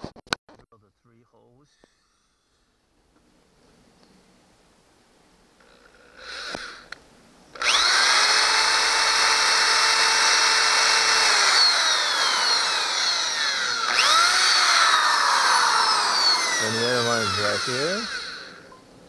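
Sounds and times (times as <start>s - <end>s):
power drill whining: 5.6s - 18.8s.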